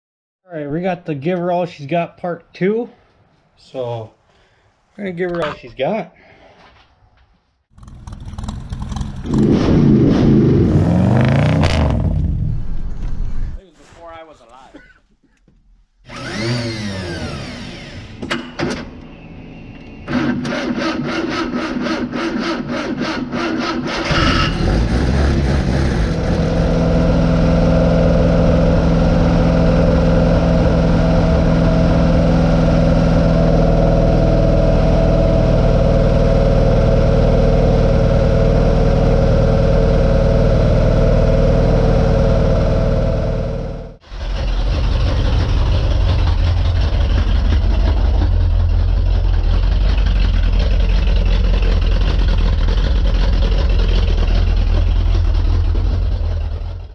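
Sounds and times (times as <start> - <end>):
engine revving down: 7.7 - 13.6, 16.1 - 18.2, 20.0 - 56.9
starter motor cranking: 16.1 - 18.2
loud engine idle: 44.1 - 56.9.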